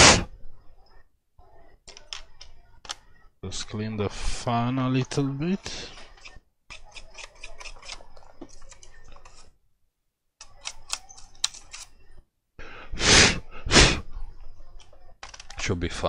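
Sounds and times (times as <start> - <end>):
hissing air blasts: 0.0 - 0.3, 13.0 - 14.0.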